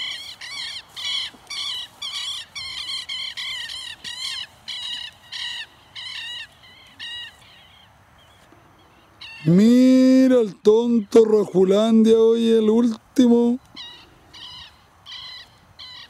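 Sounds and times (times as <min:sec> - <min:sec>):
animal shrill calls: 0:00.0 - 0:07.8, 0:09.2 - 0:09.7, 0:13.7 - 0:16.0.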